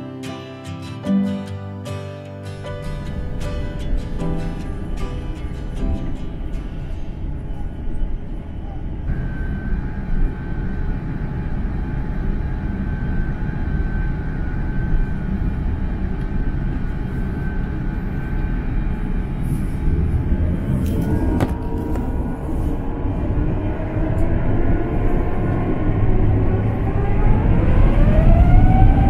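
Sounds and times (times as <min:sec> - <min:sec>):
airliner engines low rumble: 0:02.8 - 0:29.0
faint steady whine: 0:02.9 - 0:24.6.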